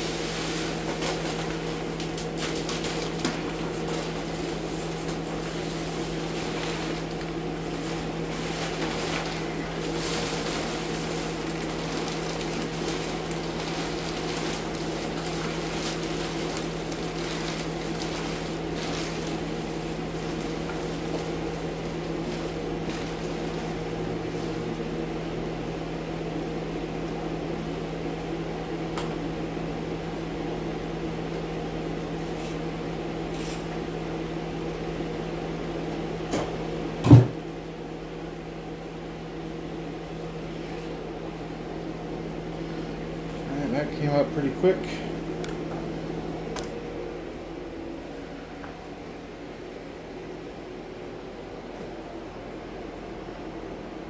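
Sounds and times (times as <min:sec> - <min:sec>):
plastic sheeting crinkling: 0:00.0 - 0:24.8
fan humming: 0:00.0 - 0:54.0.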